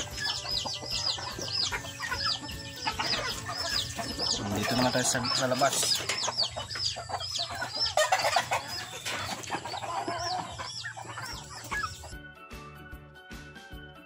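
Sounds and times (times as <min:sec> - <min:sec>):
chickens clucking: 0:00.0 - 0:12.2
background music with steady beat: 0:00.0 - 0:14.0.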